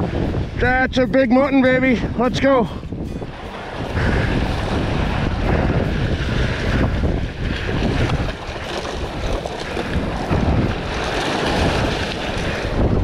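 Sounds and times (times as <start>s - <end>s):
sea surf washing against rocks: 0.0s - 13.0s
wind buffeting microphone: 0.0s - 13.0s.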